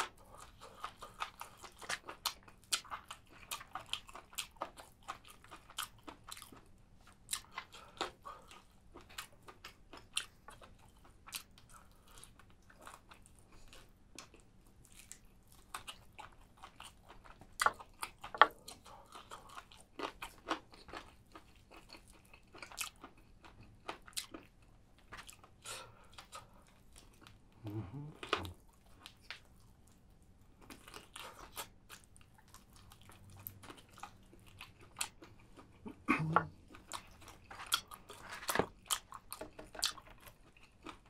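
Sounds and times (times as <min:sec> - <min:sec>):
person eating crunchy food: 0:00.0 - 0:30.0, 0:30.6 - 0:41.0.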